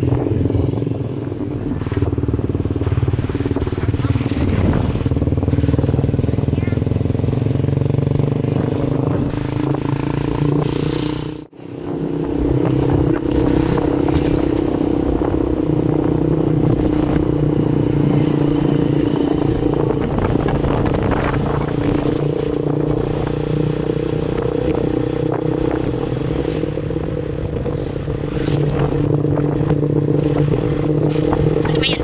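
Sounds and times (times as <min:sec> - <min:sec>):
wind noise on microphone: 0:00.0 - 0:06.5, 0:08.1 - 0:32.0
motorcycle engine cruising: 0:00.0 - 0:32.0.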